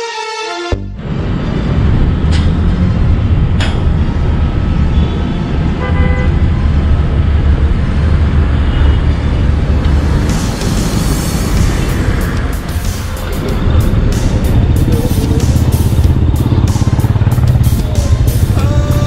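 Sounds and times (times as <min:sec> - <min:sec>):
road traffic: 0:00.0 - 0:19.0
moving vehicle rumble: 0:00.9 - 0:19.0
car horn tooting: 0:05.8 - 0:06.4.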